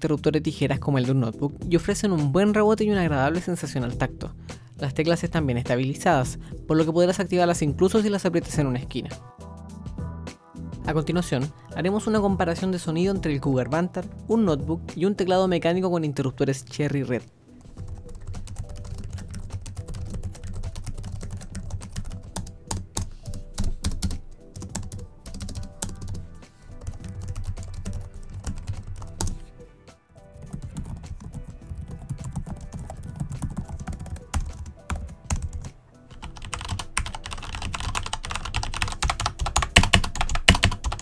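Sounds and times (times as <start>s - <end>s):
dull membrane keyboard typing: 17.6s - 26.2s, 26.8s - 29.4s, 30.4s - 41.0s
sharp mechanical keyboard typing: 17.9s - 26.2s, 30.4s - 41.0s.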